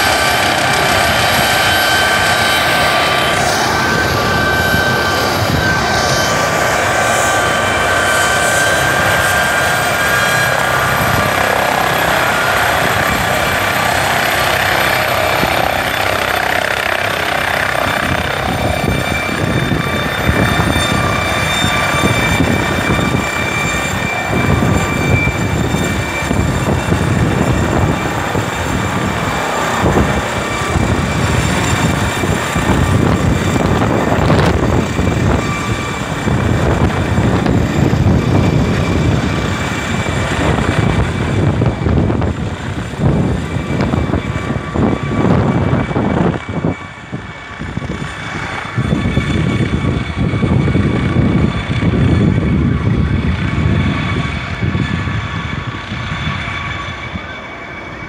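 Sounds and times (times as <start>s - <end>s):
helicopter lifting off: 0.0s - 58.0s
turbine whine: 0.0s - 58.0s.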